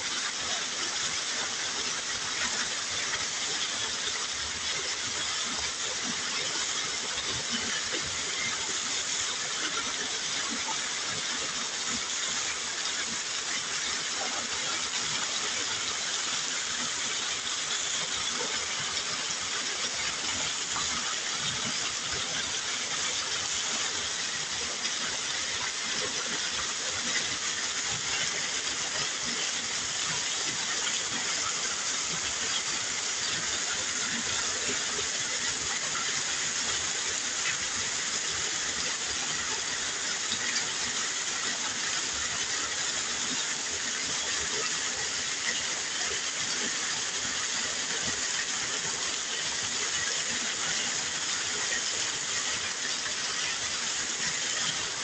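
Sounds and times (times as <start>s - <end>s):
runoff pouring and splashing: 0.0s - 55.0s.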